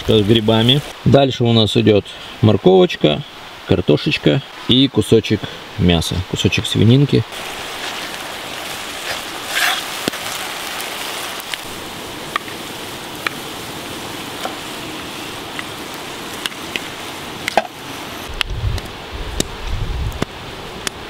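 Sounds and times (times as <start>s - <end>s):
food sizzling in frying pan: 7.3s - 18.3s
sharp pops: 9.0s - 10.3s.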